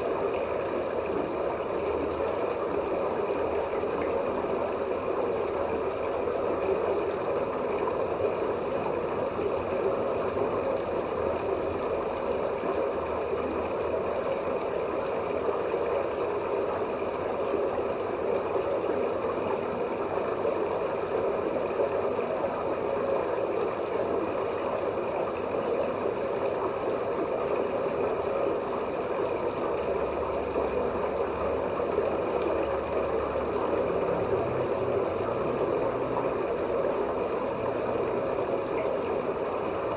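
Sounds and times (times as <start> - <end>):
water rushing and gurgling: 0.0 - 39.9.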